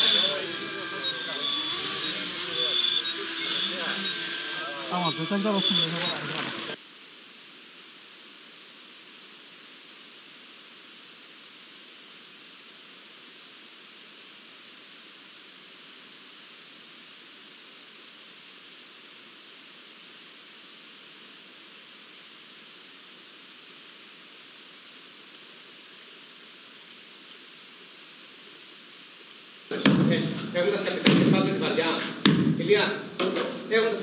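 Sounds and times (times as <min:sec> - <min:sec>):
steady hiss: 0:00.0 - 0:34.0.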